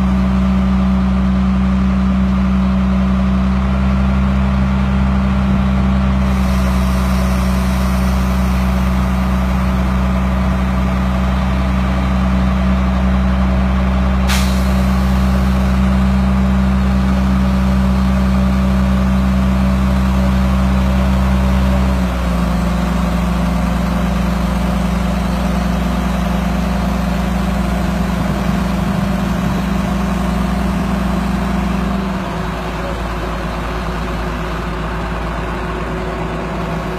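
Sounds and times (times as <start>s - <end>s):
diesel truck engine running: 0.0s - 36.9s
sharp hiss or click: 14.3s - 15.0s.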